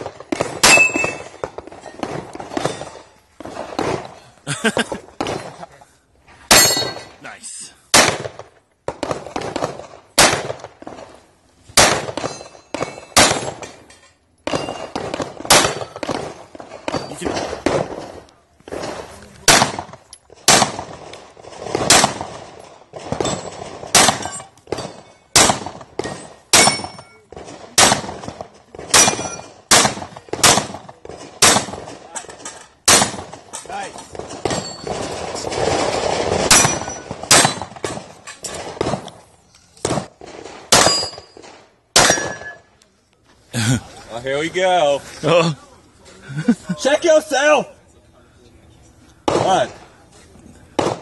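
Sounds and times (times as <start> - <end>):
pistol shots: 0.0 - 4.1, 7.9 - 11.1, 11.8 - 13.7, 14.5 - 32.1, 32.8 - 33.5, 34.1 - 39.2, 39.8 - 42.6, 49.2 - 49.8, 50.8 - 51.0
steel plates ringing: 0.6 - 1.3, 6.5 - 7.2.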